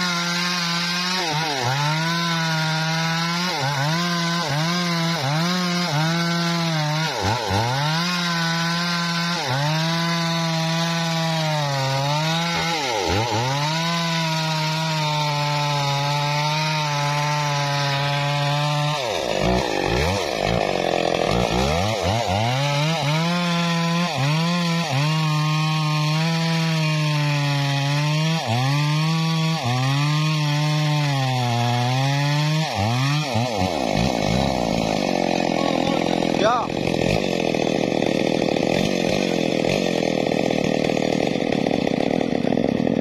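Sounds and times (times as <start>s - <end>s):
chainsaw cutting wood: 0.0s - 43.0s.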